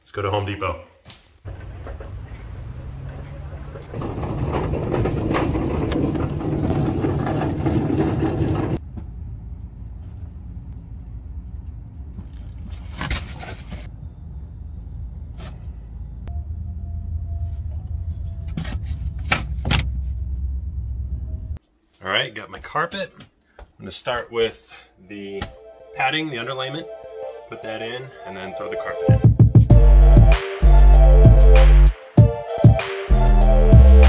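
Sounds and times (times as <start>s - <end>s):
knocks and clunks: 1.4s - 10.4s, 17.6s - 21.5s
car driving noise: 1.5s - 21.6s
low rumble: 3.8s - 12.9s, 13.9s - 21.6s.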